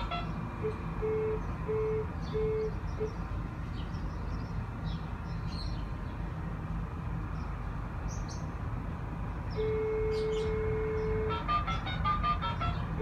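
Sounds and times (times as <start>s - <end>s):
held musical note: 0.0s - 0.8s
low outdoor rumble: 0.0s - 13.0s.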